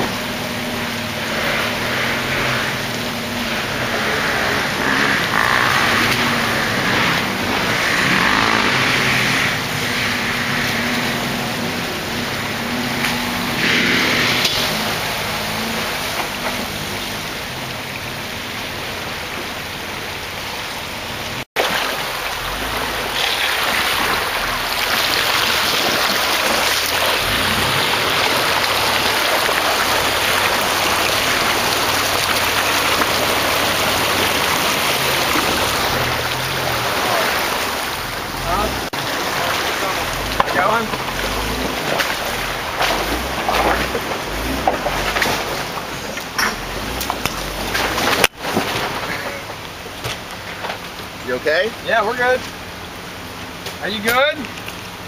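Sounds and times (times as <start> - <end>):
car engine running: 0.0 - 55.0
water sloshing around wheels: 0.0 - 55.0
tyre splashing through water: 21.3 - 51.3.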